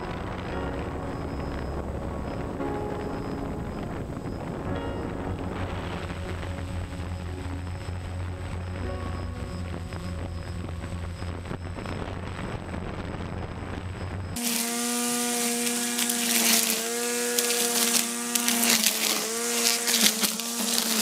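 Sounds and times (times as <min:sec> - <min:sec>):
steady low hum: 0:00.0 - 0:14.4
string trimmer cutting grass: 0:14.4 - 0:21.0.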